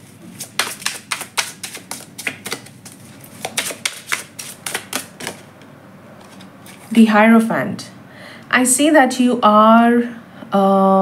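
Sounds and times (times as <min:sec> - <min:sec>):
cards being shuffled: 0:00.0 - 0:05.5, 0:06.2 - 0:06.9.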